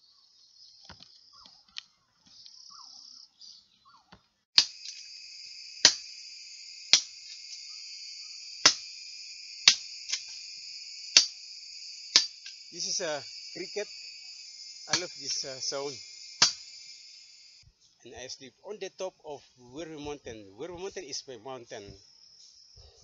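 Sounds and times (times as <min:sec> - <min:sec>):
cricket buzzing: 0:04.6 - 0:17.6
loud sharp clicks: 0:05.8 - 0:06.1, 0:06.9 - 0:07.6, 0:09.6 - 0:10.4, 0:11.1 - 0:11.4, 0:12.1 - 0:12.6, 0:14.9 - 0:15.5.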